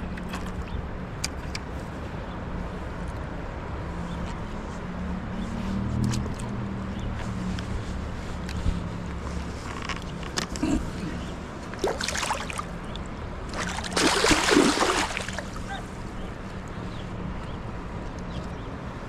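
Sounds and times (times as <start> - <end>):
water splashing: 11.6 - 15.9.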